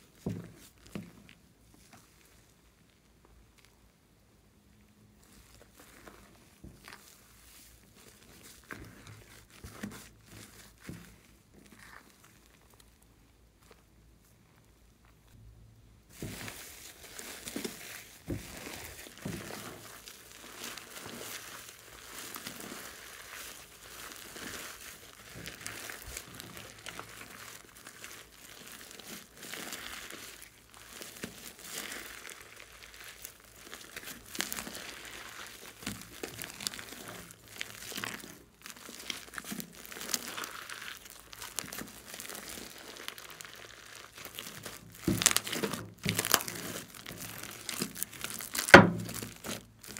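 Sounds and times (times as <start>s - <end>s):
slime squeezed wet crackling: 16.2s - 49.9s.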